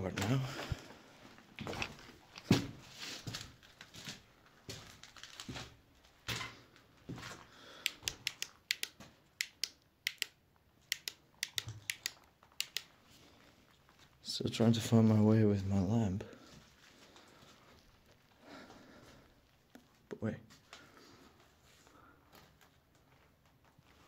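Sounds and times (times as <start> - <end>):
footsteps on gritty floor: 1.6 - 7.5.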